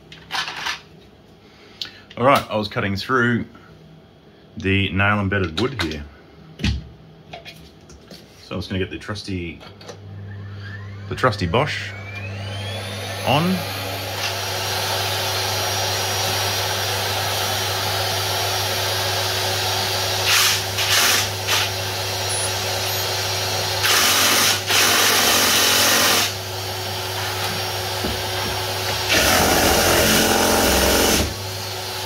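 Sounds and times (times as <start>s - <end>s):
steady motor hum: 9.8s - 32.0s.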